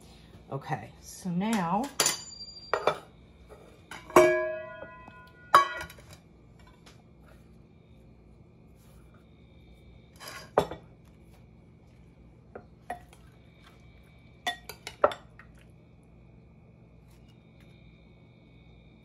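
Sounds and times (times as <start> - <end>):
metal spoon clinking on glass bowl: 1.8 - 3.1.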